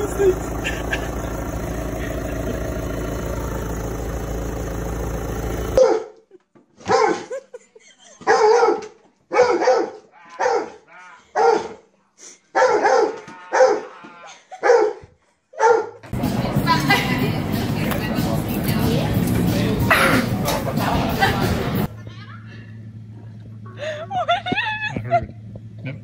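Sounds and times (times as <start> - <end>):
dog barking: 5.8 - 6.2, 6.8 - 7.3, 8.2 - 11.8, 12.5 - 14.0, 14.6 - 16.0.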